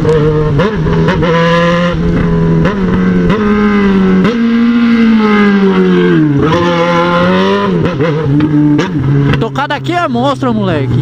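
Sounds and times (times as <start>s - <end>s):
motorcycle engine shifting gears: 0.0s - 11.0s.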